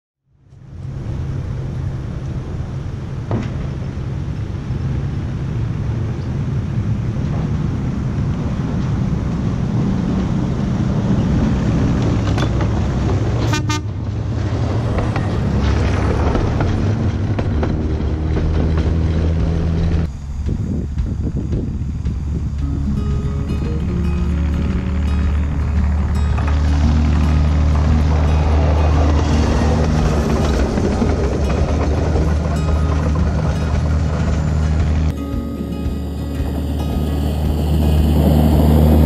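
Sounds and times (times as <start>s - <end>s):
rail bus engine running: 0.3s - 39.0s
horn toots: 13.4s - 14.0s.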